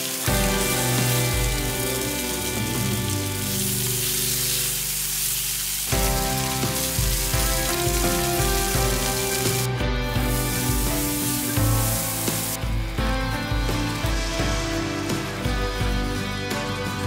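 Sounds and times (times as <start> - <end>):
tongs turning meat: 0.0 - 12.6
chicken sizzling in a frying pan: 0.0 - 15.5
background music: 0.0 - 17.0.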